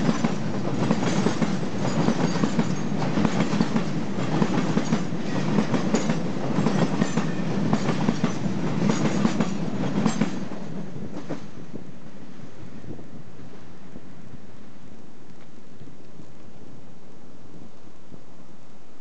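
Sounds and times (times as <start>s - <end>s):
train wheels clicking over rail joints: 0.0s - 11.6s
freight train rumble: 0.0s - 14.8s.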